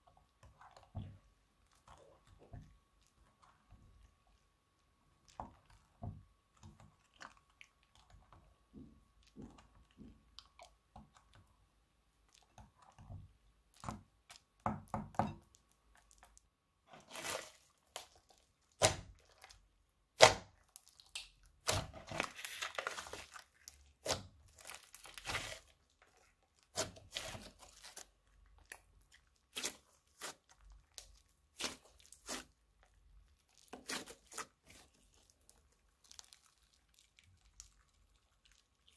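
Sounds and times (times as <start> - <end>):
spatula mixing slime in glass bowl: 0.0 - 38.9
slime crackling and popping: 15.4 - 38.9.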